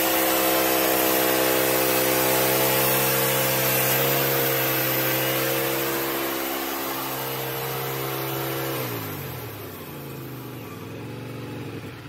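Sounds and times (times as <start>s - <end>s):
sawmill engine running: 0.0s - 12.0s.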